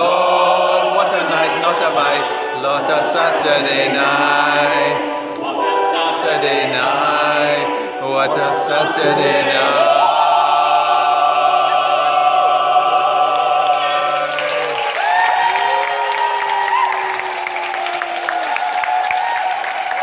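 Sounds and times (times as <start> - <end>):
man and woman singing duet: 0.0 - 11.8
audience applause: 13.0 - 20.0.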